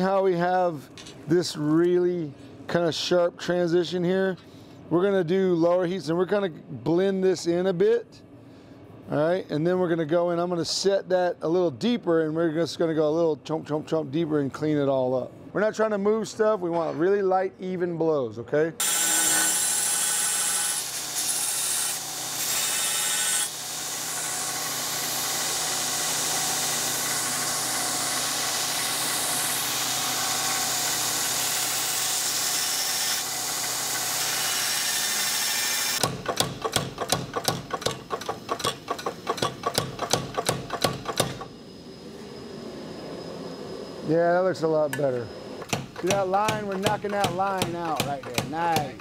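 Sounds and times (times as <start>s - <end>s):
belt grinder grinding steel: 18.8s - 36.7s
power hammer striking hot steel: 36.0s - 41.5s, 45.6s - 49.0s.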